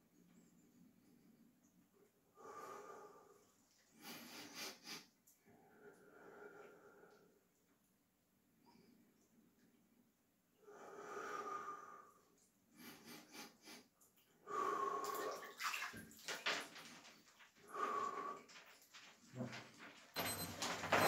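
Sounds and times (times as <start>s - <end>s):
water sloshing in tub: 15.0s - 17.4s.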